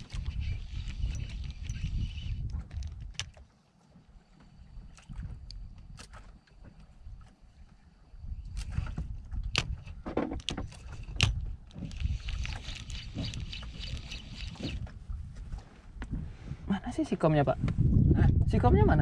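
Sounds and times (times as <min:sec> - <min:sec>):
water lapping against boat hull: 0:00.0 - 0:17.4.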